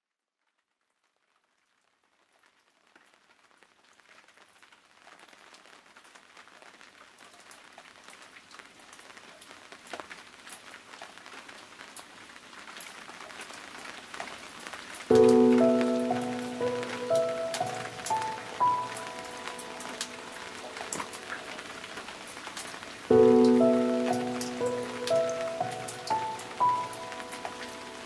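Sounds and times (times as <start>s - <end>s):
rain hiss: 4.2s - 28.0s
raindrops ticking: 7.3s - 28.0s.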